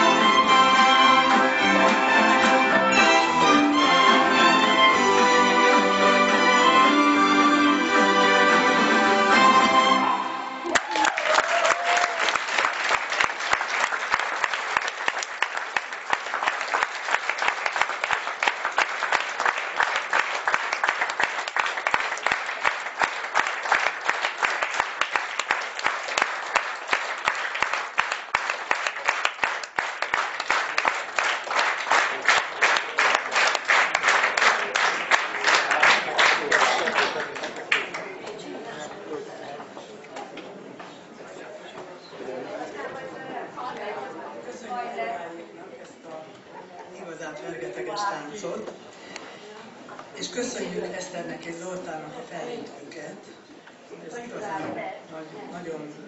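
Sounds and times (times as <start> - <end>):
audience applause: 9.3 - 38.2.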